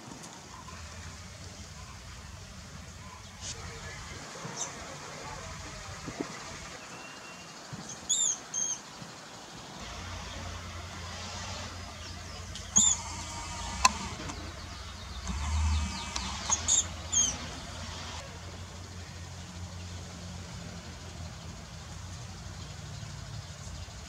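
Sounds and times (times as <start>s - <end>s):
steady low rumble: 0.5s - 6.8s, 9.8s - 19.7s
mouse squeaking: 8.1s - 8.8s, 12.5s - 17.7s
sharp click: 15.2s - 17.4s.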